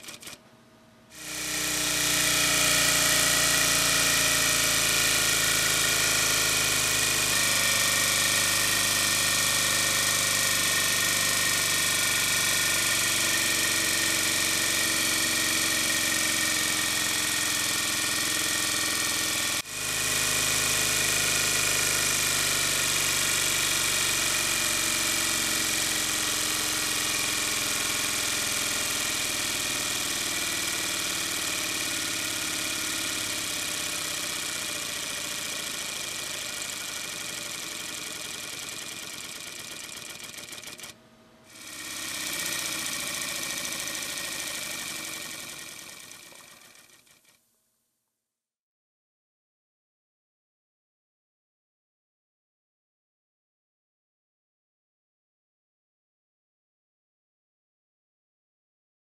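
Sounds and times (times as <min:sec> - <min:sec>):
model aircraft engine buzzing: 0:01.1 - 0:47.4.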